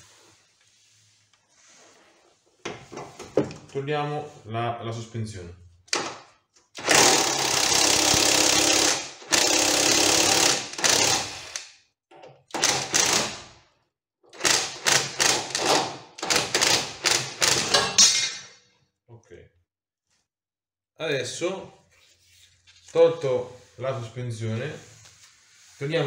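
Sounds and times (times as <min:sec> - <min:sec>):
impact wrench hammering: 0:14.4 - 0:18.4.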